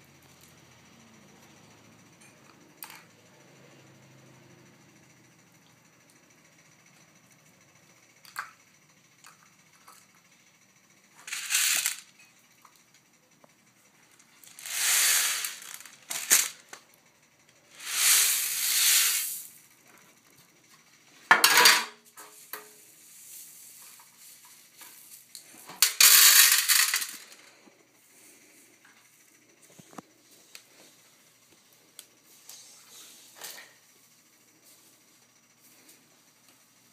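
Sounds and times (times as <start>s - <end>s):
popcorn kernels spilling onto floor: 11.2s - 12.1s, 14.4s - 16.8s, 17.7s - 19.6s, 23.1s - 27.4s.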